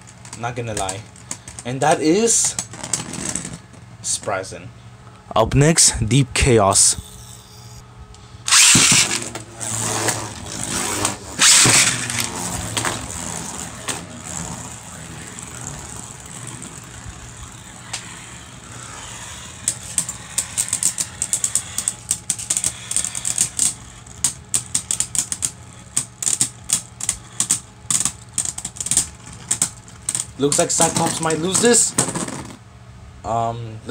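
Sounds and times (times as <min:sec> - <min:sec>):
spinning tops launched and clashing: 0:08.5 - 0:25.3
spinning tops whirring: 0:08.5 - 0:32.6
spinning tops clacking together: 0:11.4 - 0:14.6.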